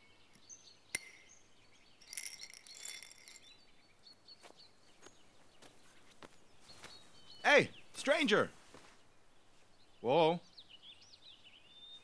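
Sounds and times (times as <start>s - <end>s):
birds chirping faintly: 0.0s - 12.0s
glass jars clinking: 2.0s - 3.6s.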